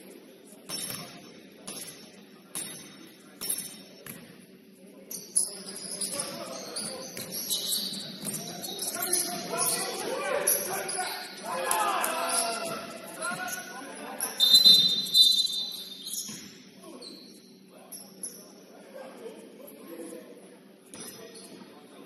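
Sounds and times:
basketball bouncing on gym floor: 0.7s - 4.4s, 6.2s - 7.6s, 8.2s - 8.6s
players' voices: 4.7s - 16.1s
sneakers squeaking on court: 5.1s - 11.4s, 12.7s - 18.5s.

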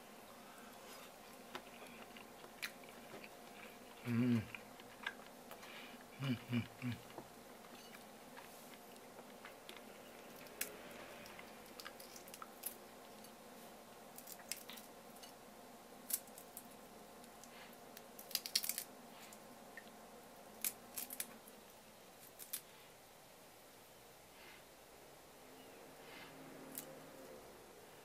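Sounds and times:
shrimp shells cracking: 18.2s - 18.9s, 20.6s - 21.3s.

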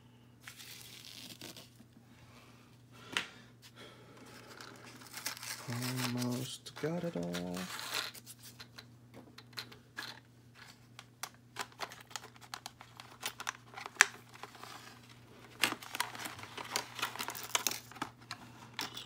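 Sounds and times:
plastic packaging crinkling: 0.4s - 1.8s, 4.3s - 8.6s, 11.3s - 18.3s.

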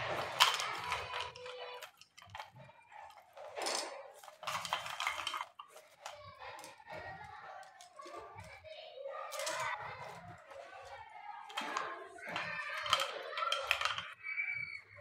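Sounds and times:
packaging rustling: 0.0s - 8.6s
household items clattering: 0.0s - 15.0s.

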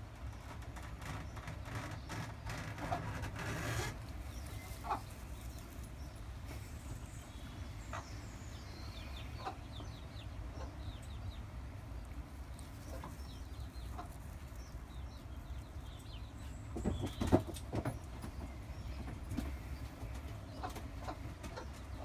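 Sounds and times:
hen clucking softly: 4.4s - 5.6s, 7.8s - 8.4s, 9.0s - 11.5s, 12.6s - 14.8s, 19.4s - 22.0s.

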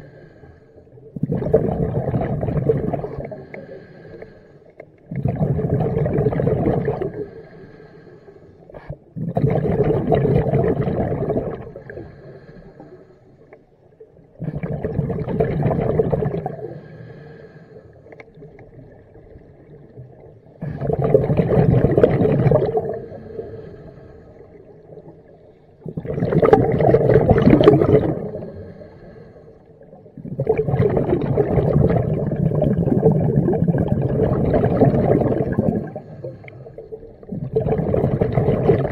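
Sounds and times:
underwater breath bubbling: 0.0s - 38.9s.

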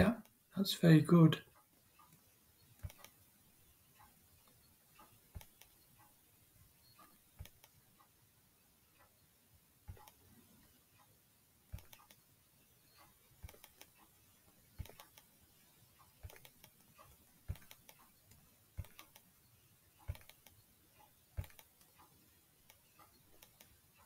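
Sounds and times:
computer mouse clicks: 1.6s - 3.2s, 4.0s - 6.2s, 6.9s - 7.8s, 9.9s - 10.2s, 11.7s - 12.2s, 12.9s - 14.1s, 14.7s - 19.3s, 20.0s - 23.8s.

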